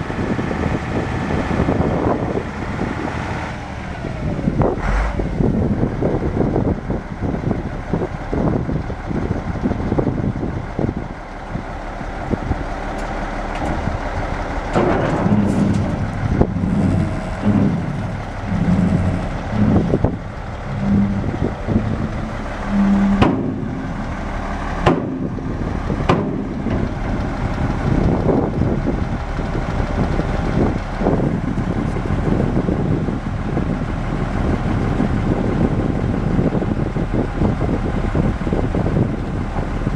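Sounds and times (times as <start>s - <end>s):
diesel engine running: 0.0s - 39.9s
sharp metal knocks: 14.7s - 24.2s, 24.8s - 27.0s.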